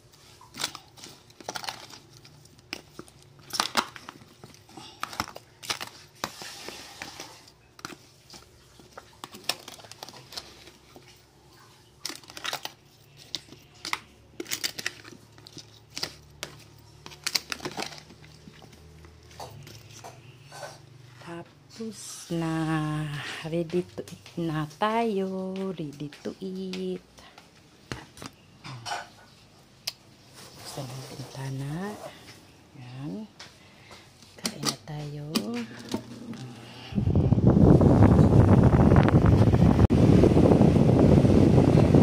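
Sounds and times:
plastic crinkling: 0.0s - 20.6s
spoon tossing food in plastic container: 0.0s - 20.8s.

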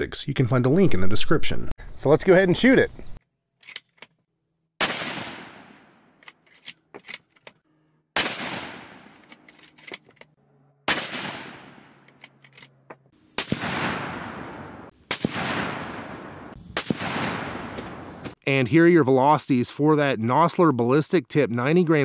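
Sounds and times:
rifle shots with echo: 4.8s - 6.1s, 8.2s - 9.2s, 10.9s - 12.1s, 13.4s - 18.1s.

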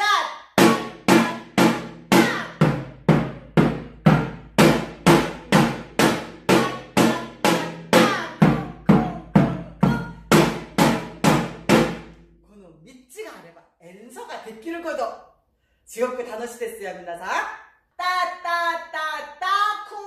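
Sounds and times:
hourglass drum strokes: 0.6s - 12.1s.

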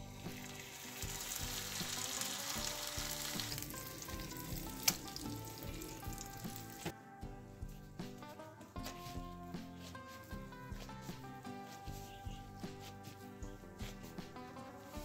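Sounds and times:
burger patty sizzling: 0.0s - 6.9s
background music: 0.0s - 15.0s.

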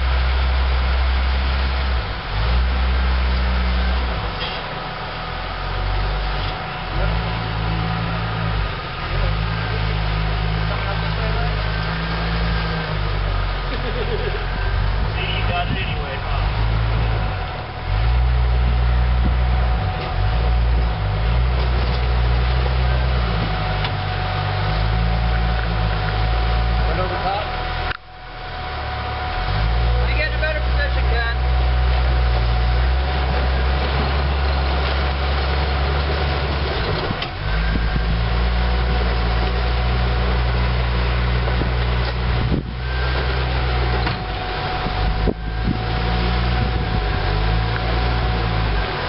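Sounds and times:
off-road vehicle engine under load: 0.0s - 49.0s.

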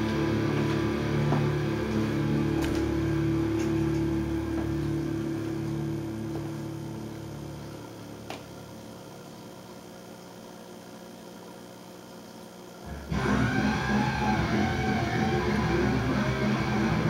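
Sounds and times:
faint steady hum: 0.0s - 17.0s
loud music: 12.9s - 17.0s.

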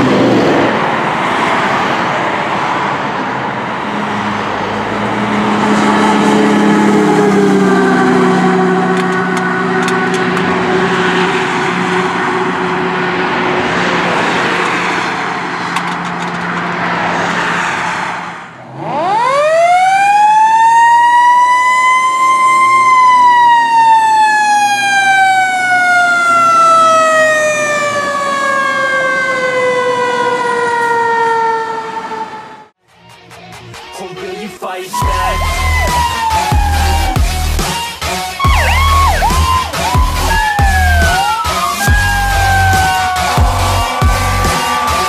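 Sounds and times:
fire engine passing: 0.0s - 32.8s, 34.9s - 45.0s
mechanical siren whine: 5.6s - 14.6s, 18.8s - 32.7s, 35.0s - 45.0s.

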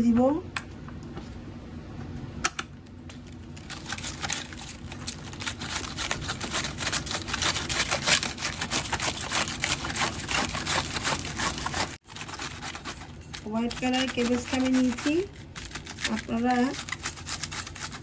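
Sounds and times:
knife chopping cabbage on board: 5.4s - 18.0s.

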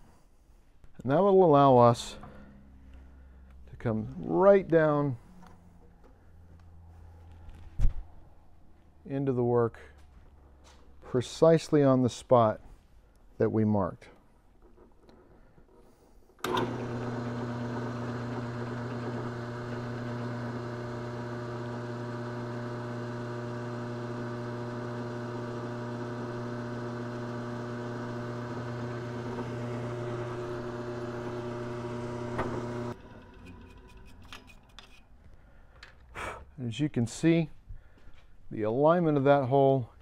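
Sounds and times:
drill press motor humming: 16.4s - 34.2s
drill cutting metal: 16.5s - 33.0s.

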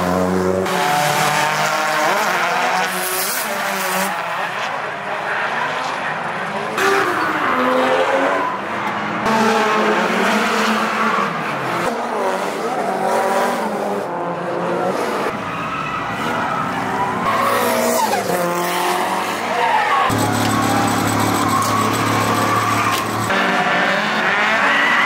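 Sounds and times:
car engines revving hard: 0.0s - 25.0s
tyre squeal: 17.3s - 18.4s, 19.8s - 23.3s.

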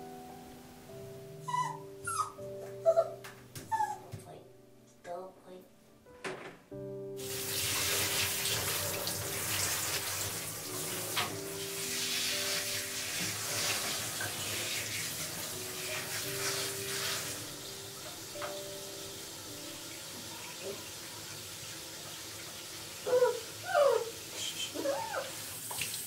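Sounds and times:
soft background music: 0.0s - 25.7s
shower head spraying water: 7.2s - 26.0s.

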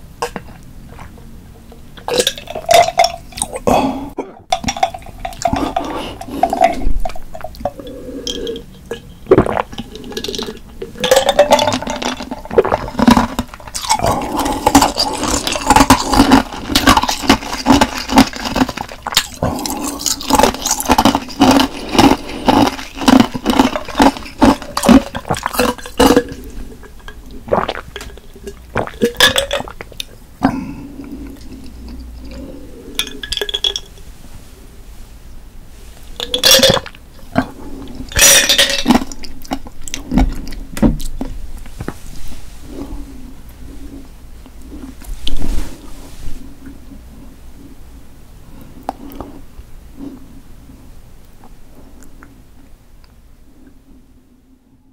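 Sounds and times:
wet chewing and smacking: 4.6s - 30.2s.

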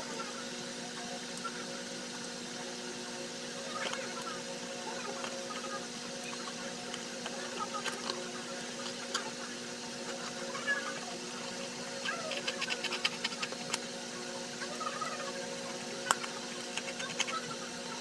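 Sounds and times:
steady hum: 0.0s - 18.0s
cutter blade scraping cardboard: 12.0s - 13.8s, 16.5s - 17.5s.

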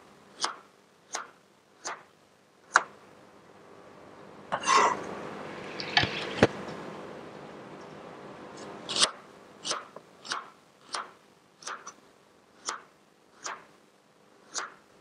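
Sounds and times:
knife slicing onion on board: 8.8s - 12.0s, 12.6s - 13.7s, 14.5s - 14.8s.

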